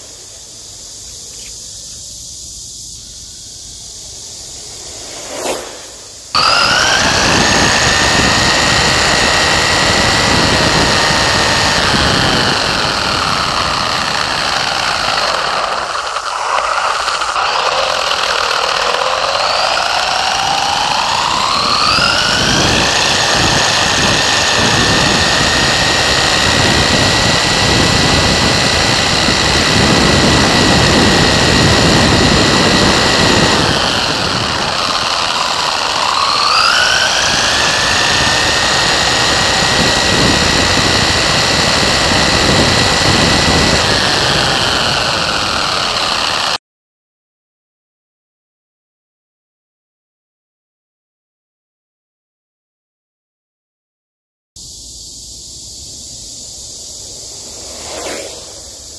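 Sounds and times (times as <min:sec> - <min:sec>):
electric motor and gears whining: 0:00.0 - 0:46.6, 0:54.6 - 0:58.9
tyre noise: 0:00.0 - 0:46.6
wind noise: 0:00.0 - 0:46.6.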